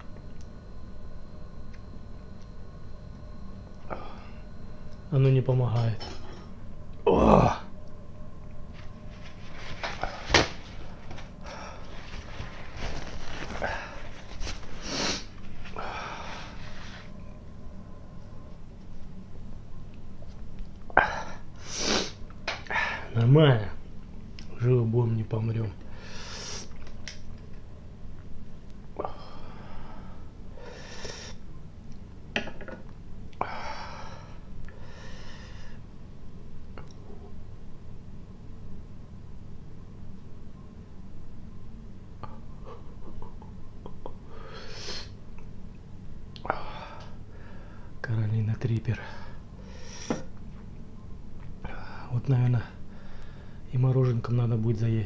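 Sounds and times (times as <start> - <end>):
man breathing hard: 14.8 - 17.0, 29.0 - 31.4, 33.4 - 35.8, 46.5 - 48.0, 52.9 - 53.6.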